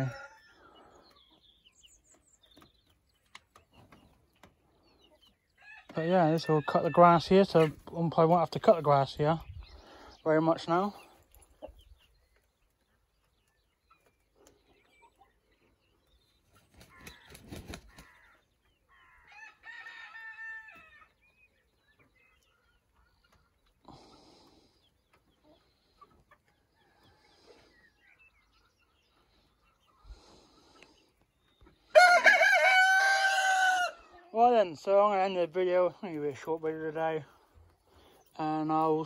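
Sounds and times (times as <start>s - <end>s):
chickens clucking: 0.0s - 39.0s
cockerel crowing: 31.9s - 34.1s.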